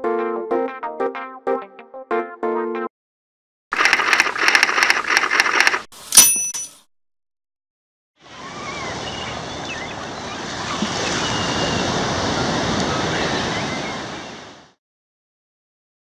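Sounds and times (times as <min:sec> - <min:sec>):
ocean surf: 0:08.2 - 0:14.8.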